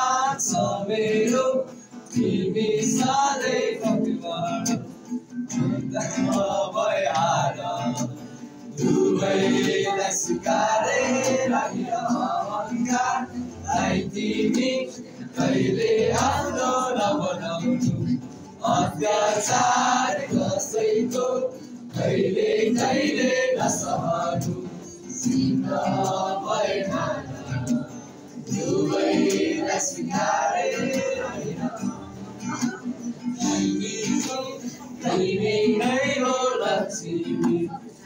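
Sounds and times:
boys singing together: 0.0 - 38.0
strummed acoustic guitar: 0.0 - 38.0.

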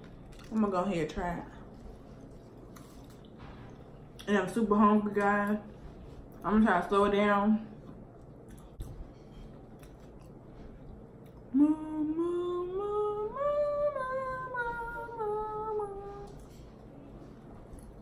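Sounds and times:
woman humming wordless tune: 11.5 - 16.4.

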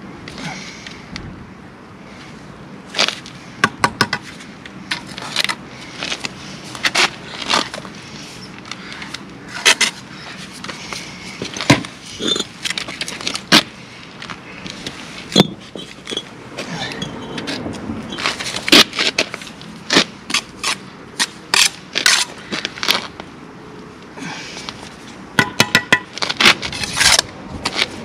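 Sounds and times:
trowel and bricks knocking: 25.4 - 26.1.

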